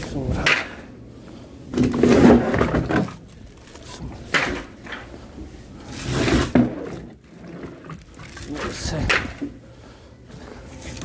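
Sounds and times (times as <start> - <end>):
firewood bags scraping on wood: 1.8 - 4.1, 5.7 - 9.2.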